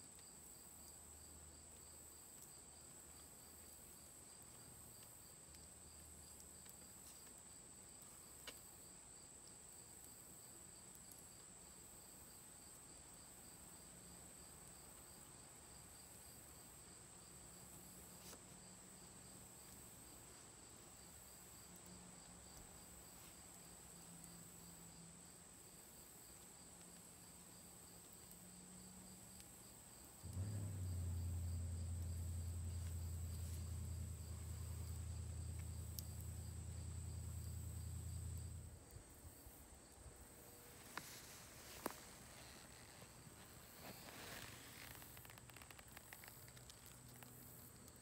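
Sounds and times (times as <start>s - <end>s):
crickets trilling: 0.2s - 48.0s
loud low hum: 30.2s - 38.9s.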